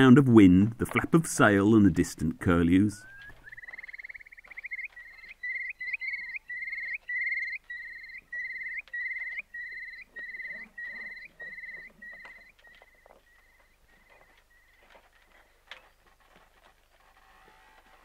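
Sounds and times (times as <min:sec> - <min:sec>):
curlew calling: 0:03.0 - 0:16.2.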